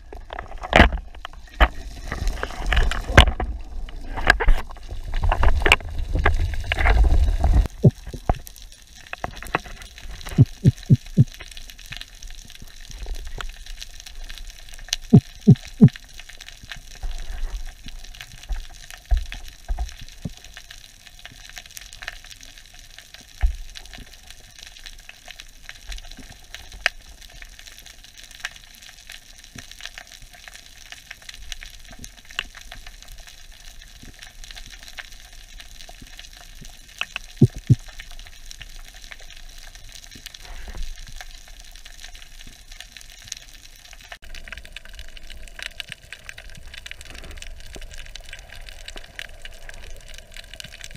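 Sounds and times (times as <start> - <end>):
underwater crackling and clicking: 0.0 - 50.9
diver's throat grunts: 10.4 - 11.2, 37.4 - 37.7.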